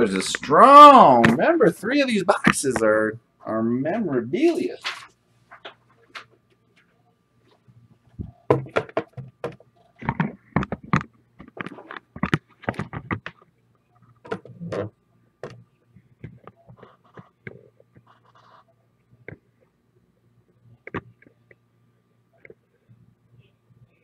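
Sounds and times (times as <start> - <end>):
low electrical hum: 0.0 - 24.0
handling knocks and clicks: 8.2 - 13.5.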